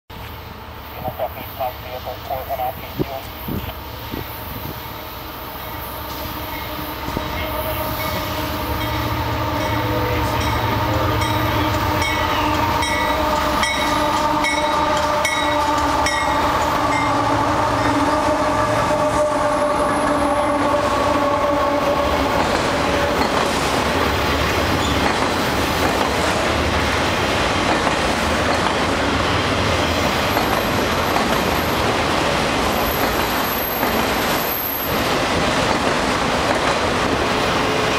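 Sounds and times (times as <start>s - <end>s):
diesel locomotive rumble: 0.1s - 37.9s
train wheels rolling: 3.3s - 37.9s
train horn chord: 5.0s - 23.2s, 37.2s - 37.9s.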